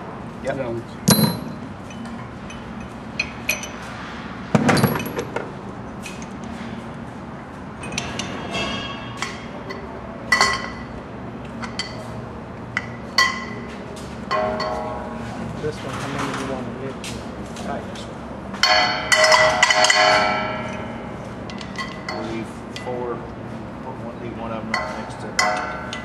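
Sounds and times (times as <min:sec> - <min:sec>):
heavy metallic knock: 0:01.1 - 0:01.7
metal bolts clinking on steel: 0:01.1 - 0:03.8.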